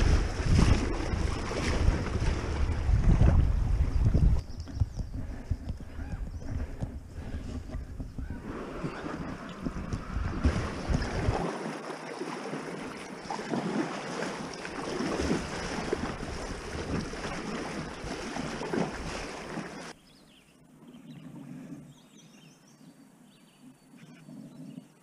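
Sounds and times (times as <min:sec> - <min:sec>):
creek water rushing: 0:00.0 - 0:03.7, 0:08.4 - 0:20.0
wind on microphone: 0:00.0 - 0:11.6
paddle splashes: 0:00.0 - 0:20.0
faint bird chirps: 0:20.0 - 0:25.0.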